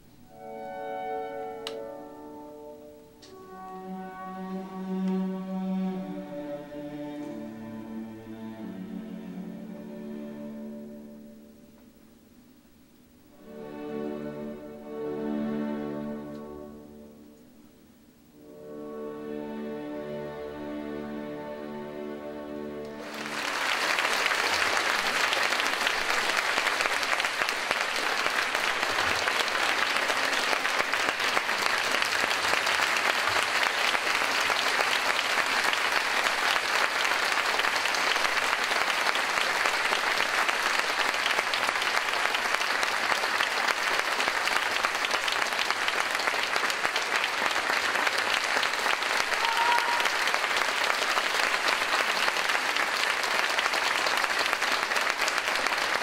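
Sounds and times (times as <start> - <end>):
audience applauding: 22.9 - 56.0.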